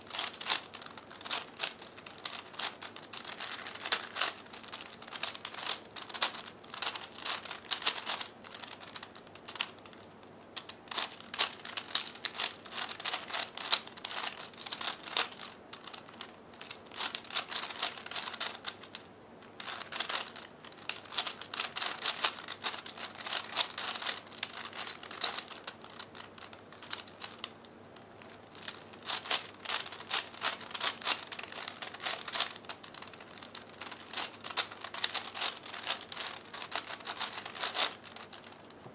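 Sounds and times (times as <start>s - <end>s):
puzzle cube layers clicking: 0.1s - 10.0s.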